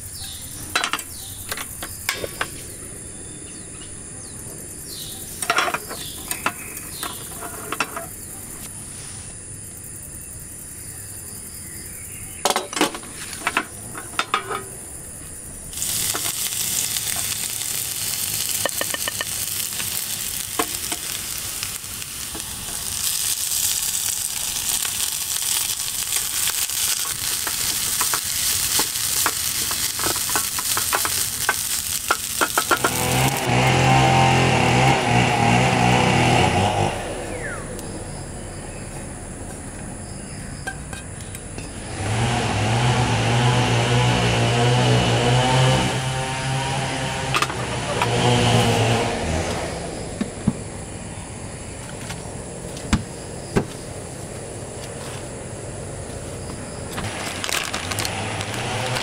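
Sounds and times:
utensils clinking and scraping a pan: 0.7 - 2.5, 5.3 - 8.4, 12.4 - 14.7, 15.8 - 33.4
loud frying sizzle: 4.8 - 8.3, 12.4 - 36.9, 56.8 - 59.0.

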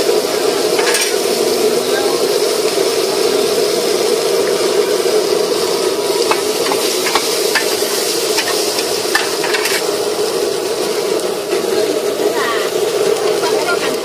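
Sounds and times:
food sizzling on pan: 0.0 - 14.0
metal spatula scraping pan: 0.8 - 1.2, 6.3 - 9.9.

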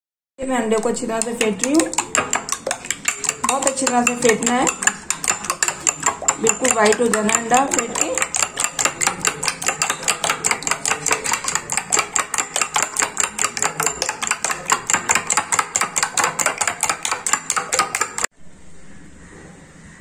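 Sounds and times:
spoon clinking in glass bowl: 0.8 - 18.3.

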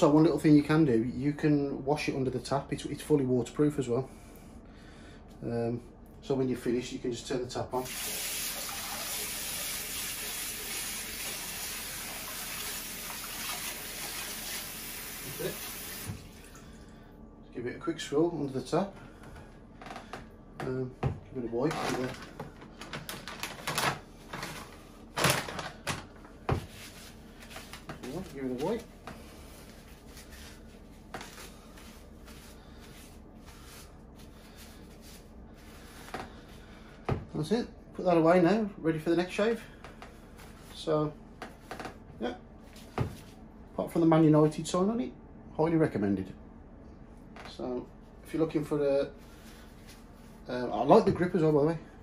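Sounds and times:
towel rubbing: 26.5 - 36.7.

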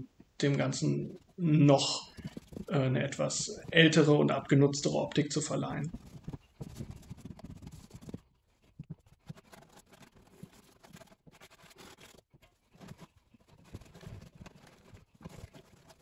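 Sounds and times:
rag rubbing paint on wood: 0.8 - 4.4, 5.8 - 16.0.

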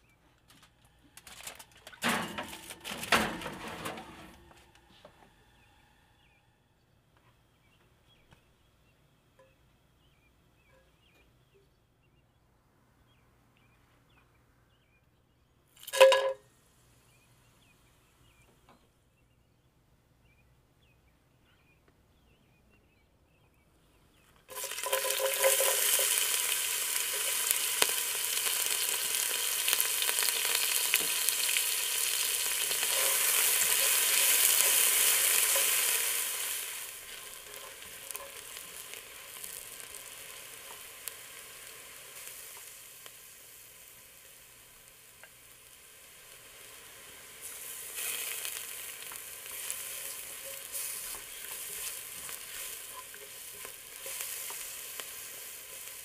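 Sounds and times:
food sizzling in hot oil: 15.8 - 16.3, 24.5 - 56.0.

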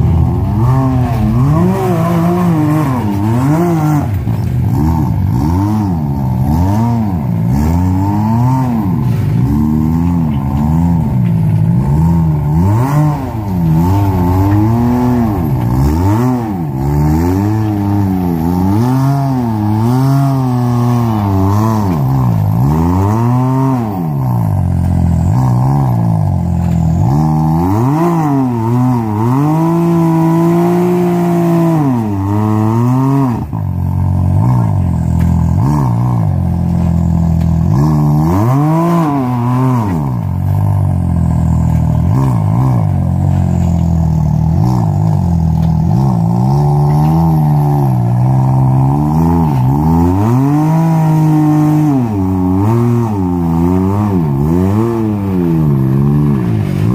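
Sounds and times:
off-road vehicle engine revving: 0.0 - 56.9.

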